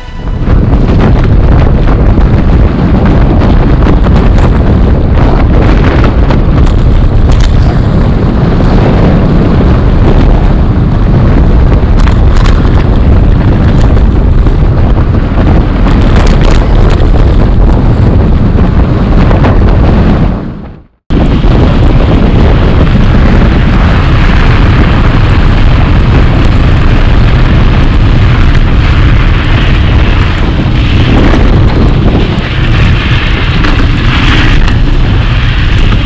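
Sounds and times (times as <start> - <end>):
tyre noise on asphalt: 0.0 - 36.0
wind buffeting microphone: 0.0 - 36.0
bike clicks and rattles: 10.8 - 18.0, 24.4 - 36.0.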